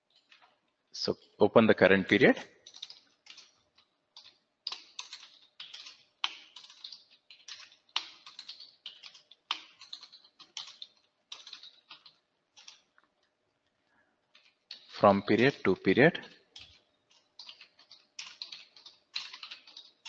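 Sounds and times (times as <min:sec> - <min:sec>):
keyboard typing: 0:02.6 - 0:13.2, 0:16.4 - 0:20.0.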